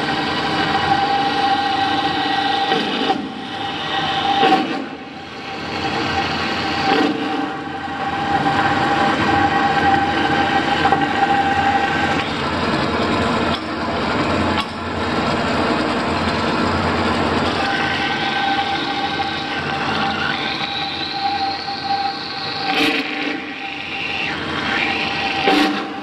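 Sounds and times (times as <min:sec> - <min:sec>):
bandsaw cutting: 0:24.8 - 0:26.0.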